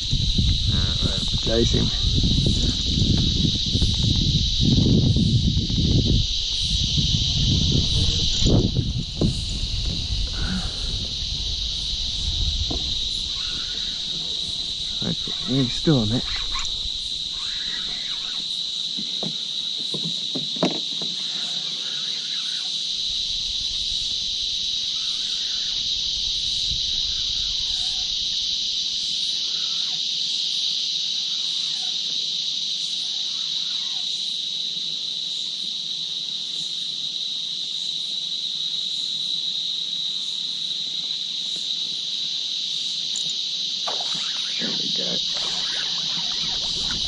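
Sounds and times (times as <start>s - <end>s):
insects droning: 0.0s - 47.0s.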